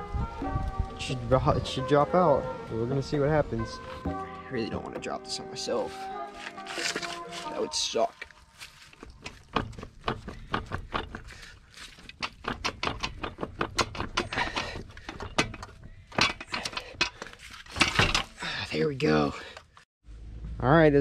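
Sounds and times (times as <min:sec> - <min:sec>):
hand ratchet clicking: 0:12.0 - 0:18.3.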